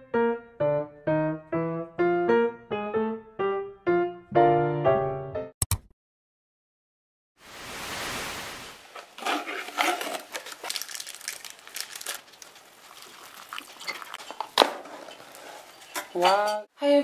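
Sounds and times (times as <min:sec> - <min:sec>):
plastic sachet crinkling and tearing: 0:09.5 - 0:14.6.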